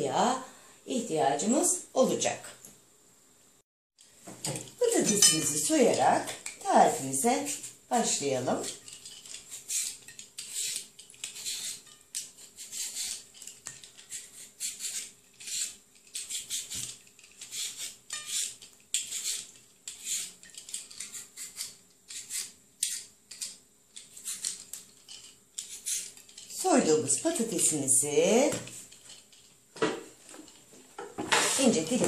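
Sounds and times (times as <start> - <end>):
peeler scraping potato skin: 4.6 - 27.7.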